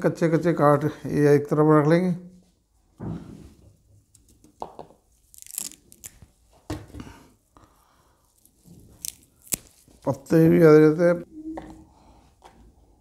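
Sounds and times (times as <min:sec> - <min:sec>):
leaves snapping and tearing: 0:05.2 - 0:06.3, 0:08.4 - 0:10.1
leafy rustling: 0:08.3 - 0:10.4.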